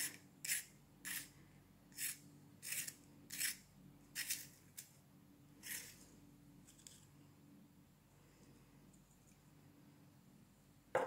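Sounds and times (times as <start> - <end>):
pencil sharpening scrapes: 0.0 - 1.3, 2.0 - 3.6, 4.2 - 4.6, 5.6 - 6.0.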